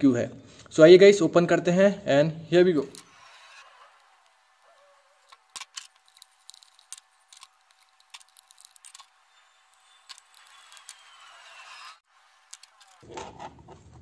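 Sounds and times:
knife blade scraping plastic: 2.8 - 14.0.

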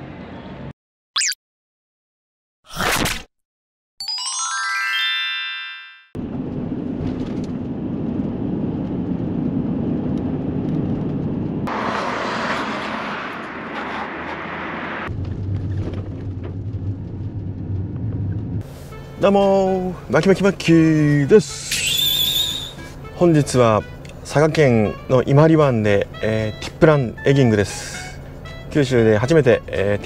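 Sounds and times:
car road and engine noise: 0.0 - 0.7, 6.2 - 30.0
chime logo jingle: 4.0 - 6.1.

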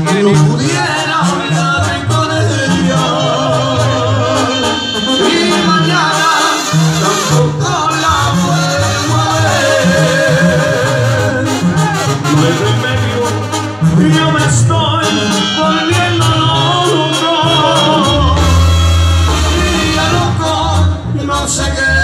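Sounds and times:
large band playing: 0.0 - 22.0
person singing: 7.3 - 18.6.

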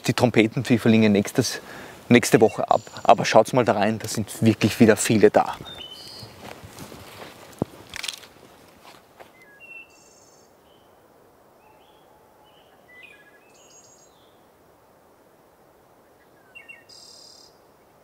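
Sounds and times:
small songbirds chirping: 0.0 - 6.6, 9.3 - 14.5, 16.0 - 18.0
faint forest ambience hiss: 0.0 - 18.0.

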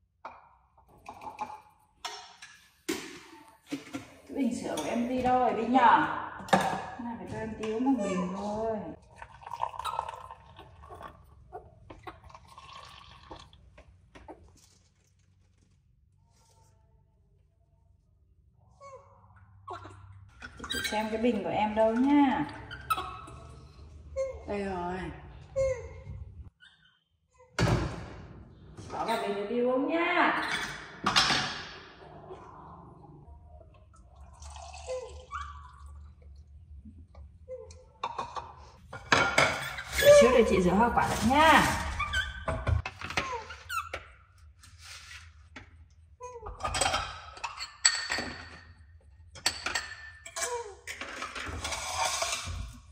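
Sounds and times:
liquid pouring into a container: 9.0 - 11.5, 12.2 - 13.7, 34.2 - 36.0.

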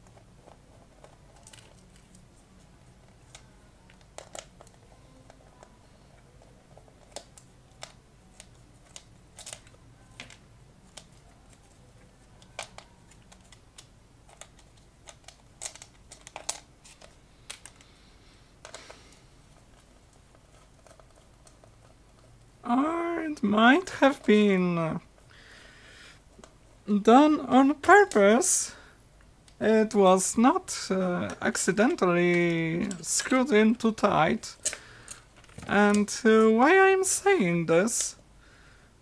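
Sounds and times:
small parts being handled: 0.0 - 17.9, 18.6 - 22.5, 31.2 - 37.2.

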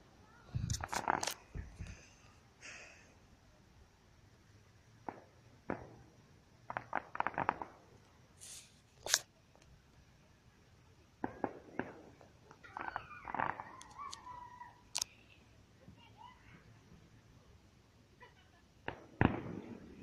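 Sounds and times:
distant fireworks popping: 0.4 - 2.2, 4.9 - 10.0, 11.2 - 16.7, 18.8 - 20.0.

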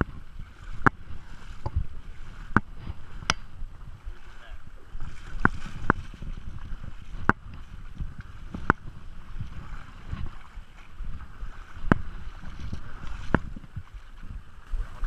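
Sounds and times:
creek water rushing around legs: 0.0 - 15.0
wind rumble on microphone: 0.0 - 15.0.

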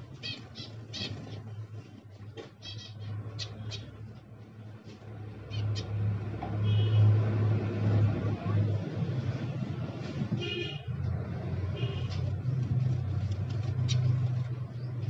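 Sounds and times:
finches chirping: 0.2 - 1.6, 2.6 - 4.0.

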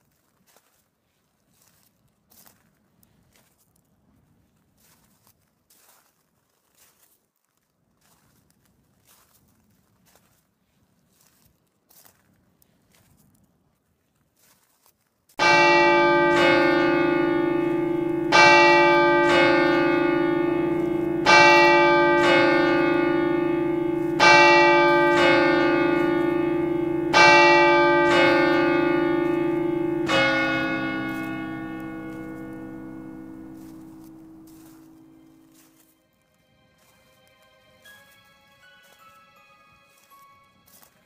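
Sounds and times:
church bell tolling: 15.4 - 35.8.

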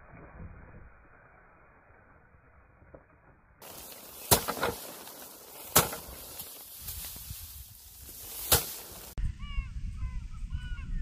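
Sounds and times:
rice sheaves thwacking: 3.6 - 9.2.

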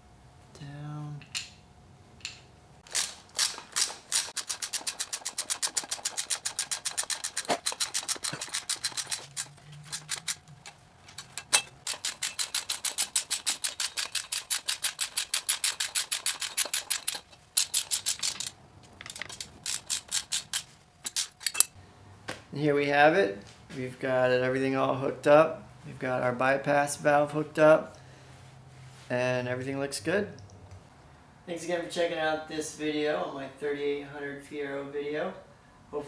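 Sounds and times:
socket ratchet clicking: 2.2 - 21.8.

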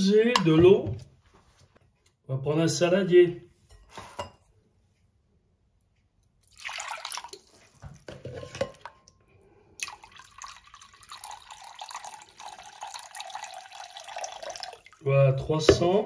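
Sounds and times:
water pouring into a glass bowl: 6.4 - 8.9, 9.8 - 15.1.

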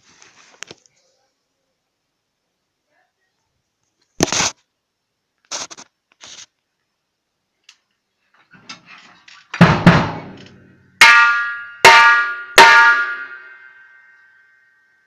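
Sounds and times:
drum kit playing: 9.6 - 10.4
cymbal crashes ringing: 11.0 - 14.7.

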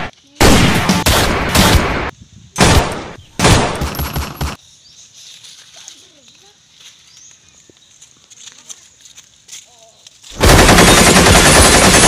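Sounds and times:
rapid gunfire bursts: 0.0 - 4.6, 10.3 - 12.0.

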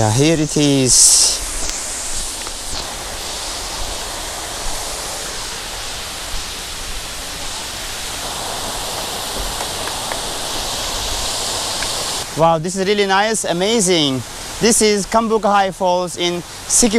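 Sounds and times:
waterfall pouring: 0.0 - 12.4.

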